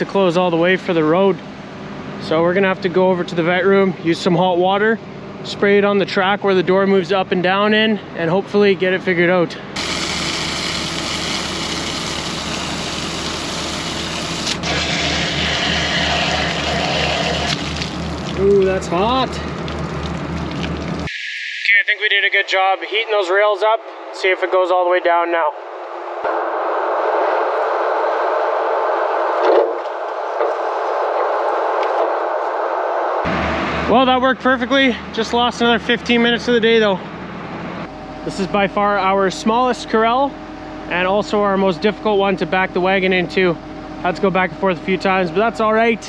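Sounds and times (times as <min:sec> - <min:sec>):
low engine hum throbbing: 0:00.0 - 0:21.1, 0:25.6 - 0:46.0
muffled machine noise: 0:00.0 - 0:46.0
water spraying from hose nozzle: 0:09.8 - 0:18.8.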